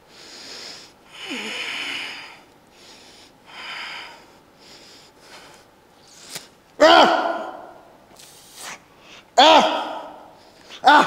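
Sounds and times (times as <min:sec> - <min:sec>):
man breathing hard: 0:00.0 - 0:06.4.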